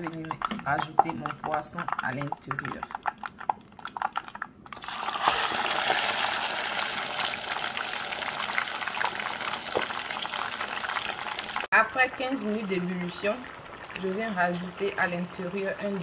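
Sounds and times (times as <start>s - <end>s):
hot oil crackling: 3.8s - 16.0s
fish sizzling in oil: 4.8s - 16.0s.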